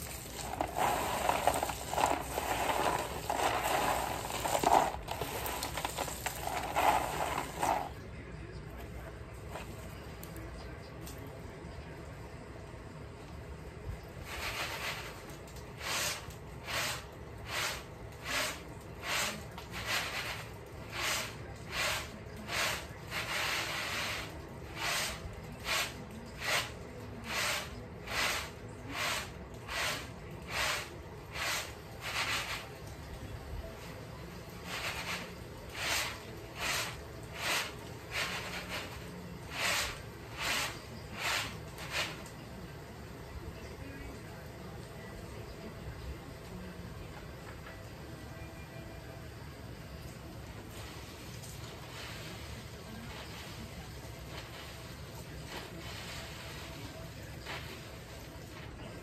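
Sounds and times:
peanuts swishing on woven tray: 0.0s - 8.0s, 14.2s - 15.2s, 15.8s - 32.7s, 34.6s - 42.2s, 51.8s - 57.9s.

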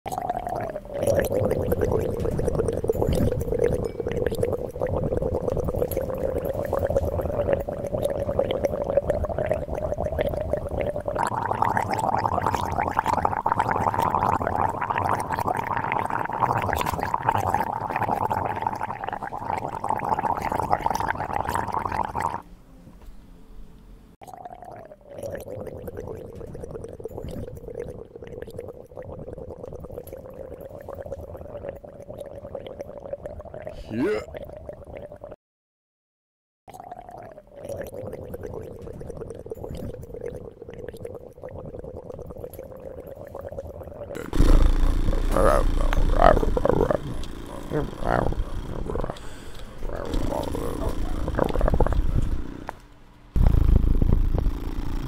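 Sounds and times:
person imitating motorcycle engine: 33.7s - 34.3s, 44.2s - 49.3s, 49.9s - 52.0s.

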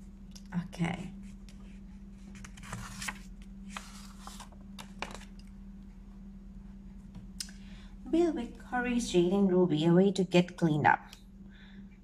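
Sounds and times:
low hum: 0.0s - 12.0s
paper pages rustling: 1.3s - 5.5s.

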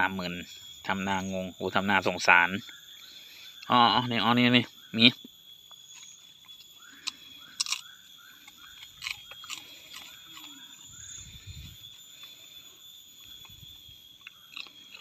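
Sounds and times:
puppy crunching and chewing: 5.8s - 11.2s, 13.2s - 15.0s.

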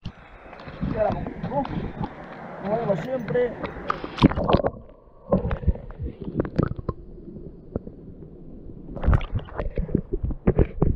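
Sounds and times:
water splashing: 0.0s - 10.6s
muffled underwater rumbling: 3.6s - 10.9s.

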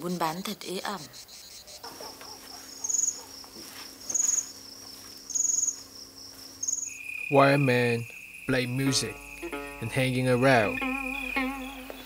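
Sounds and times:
insect loud chirp: 0.2s - 12.0s
insect high trill: 2.7s - 3.3s, 4.0s - 12.0s.

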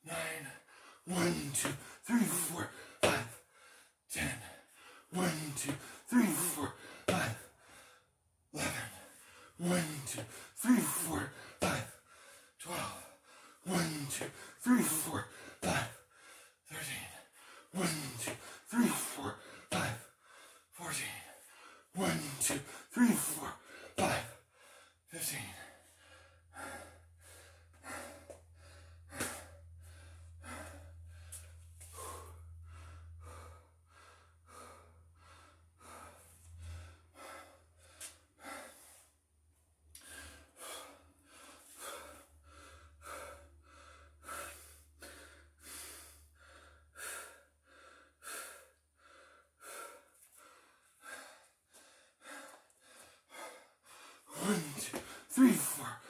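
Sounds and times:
man breathing hard: 0.0s - 39.2s, 39.9s - 56.0s.

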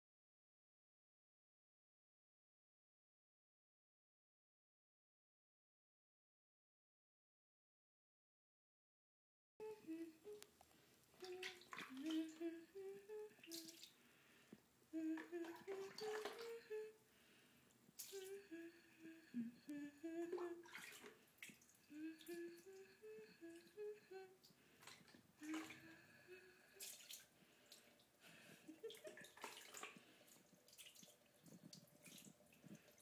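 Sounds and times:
person humming: 9.6s - 10.5s, 11.2s - 13.9s, 14.9s - 17.0s, 18.0s - 20.9s, 21.9s - 24.5s, 25.4s - 27.0s, 28.4s - 29.7s
water dripping and splashing: 11.2s - 12.4s, 13.4s - 14.0s, 15.2s - 16.5s, 18.0s - 18.4s, 20.4s - 22.4s, 26.8s - 33.0s.

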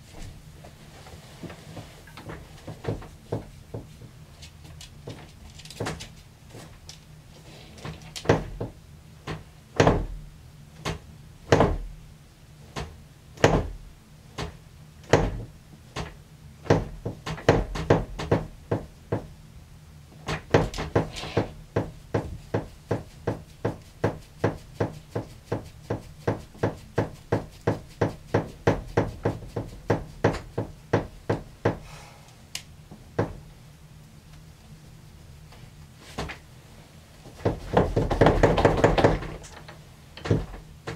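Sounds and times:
knocking: 37.4s - 39.5s.

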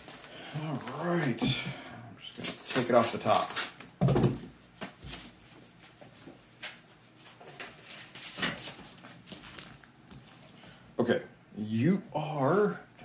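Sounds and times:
paper and plastic crinkling: 0.0s - 1.4s, 2.2s - 3.8s, 6.6s - 10.6s.

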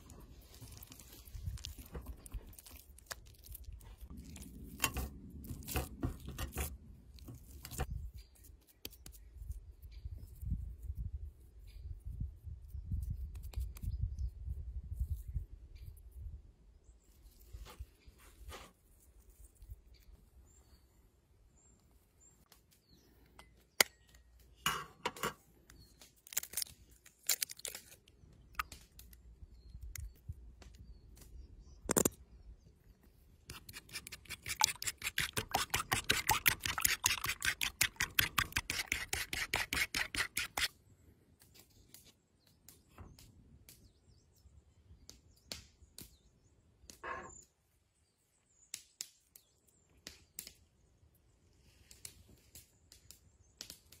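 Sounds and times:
fork beating egg in wooden bowl: 33.5s - 40.7s.

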